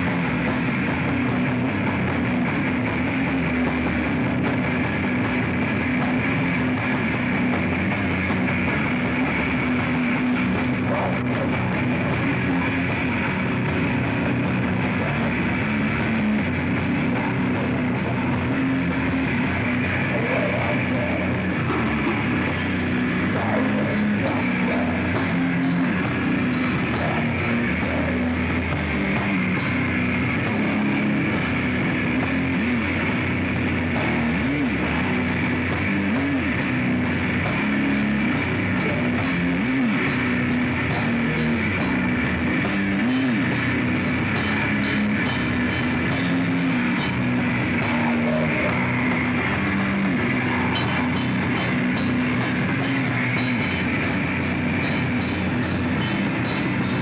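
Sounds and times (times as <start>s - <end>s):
bass guitar: 0.0s - 57.0s
distorted electric guitars: 0.0s - 57.0s
fast dense drumming: 0.0s - 57.0s.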